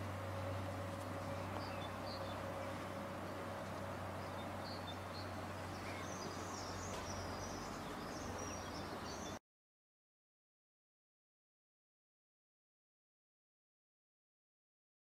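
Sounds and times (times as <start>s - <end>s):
distant electric train rumble: 0.0s - 9.4s
birds chirping: 0.4s - 9.4s.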